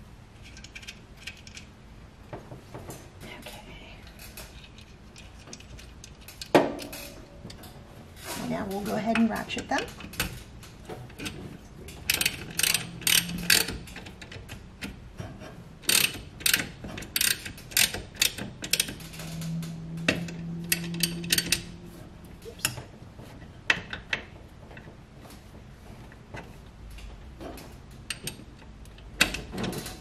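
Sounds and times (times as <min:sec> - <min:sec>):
socket ratchet clicking: 0:15.9 - 0:19.1.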